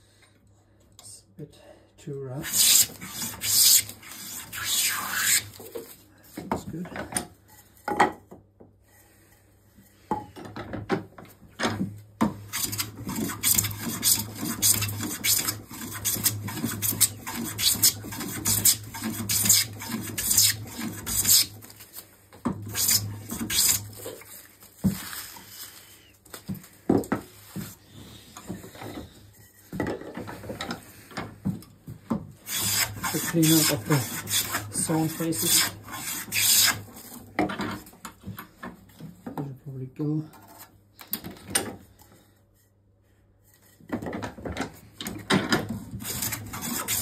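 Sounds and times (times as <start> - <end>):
hand plane shaving wood: 2.4 - 5.8, 12.3 - 21.8, 22.6 - 25.8, 32.4 - 37.9, 45.7 - 47.0.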